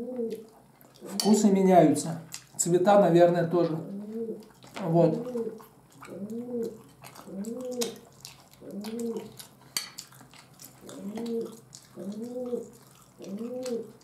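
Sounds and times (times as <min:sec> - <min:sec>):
wet chewing clicks: 0:00.3 - 0:01.2, 0:02.2 - 0:02.7, 0:04.4 - 0:14.0.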